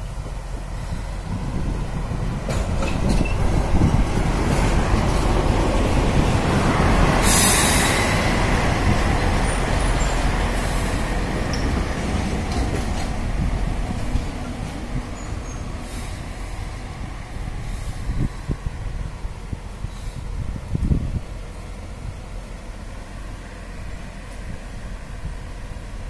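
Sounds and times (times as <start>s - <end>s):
brief hiss: 7.2s - 8.3s.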